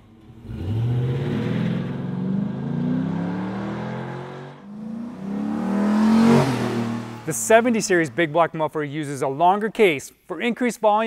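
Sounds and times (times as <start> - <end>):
truck engine accelerating: 0.0 - 8.6.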